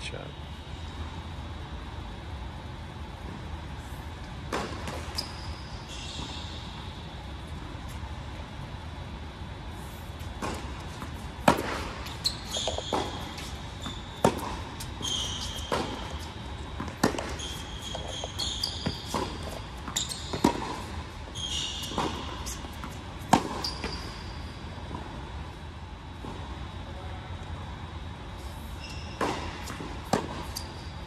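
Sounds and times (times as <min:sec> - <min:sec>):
shoes squeaking on court: 0:03.2 - 0:08.5, 0:10.0 - 0:27.2, 0:28.3 - 0:31.0
tennis ball bounces: 0:04.4 - 0:05.2, 0:10.3 - 0:21.0, 0:21.8 - 0:24.1, 0:29.2 - 0:30.7.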